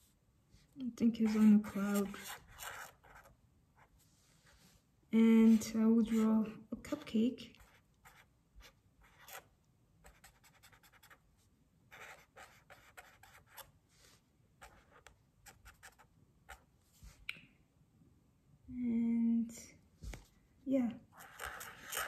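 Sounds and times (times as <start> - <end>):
marker scratching on paper: 1.1 - 3.9, 5.4 - 6.3, 7.6 - 11.2, 11.9 - 13.7, 14.6 - 16.7, 21.1 - 22.0.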